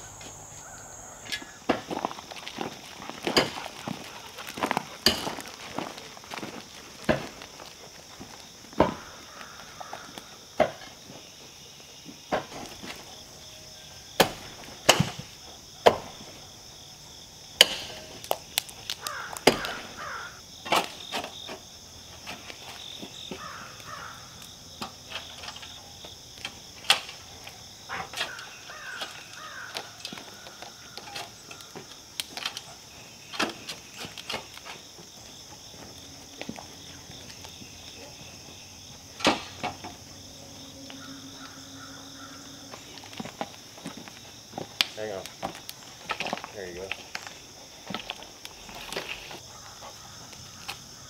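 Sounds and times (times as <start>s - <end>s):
insects droning: 0.0s - 51.0s
shovels striking and scraping clay: 4.6s - 5.6s, 17.6s - 18.3s.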